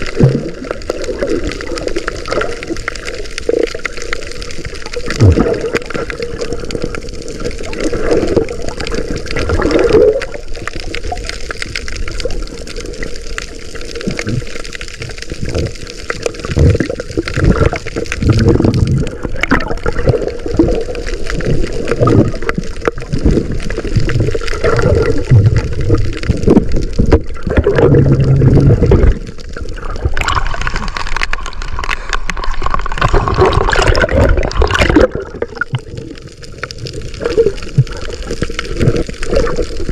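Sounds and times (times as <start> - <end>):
water splashing: 0.0 - 39.9
muffled underwater water sloshing: 15.2 - 39.9.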